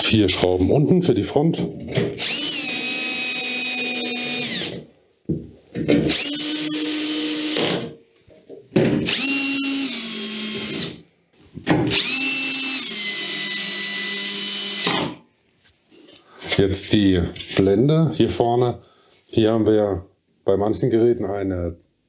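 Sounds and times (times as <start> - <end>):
cordless drill motor whine: 2.2 - 4.8, 6.1 - 7.8, 9.1 - 11.0, 11.9 - 15.2.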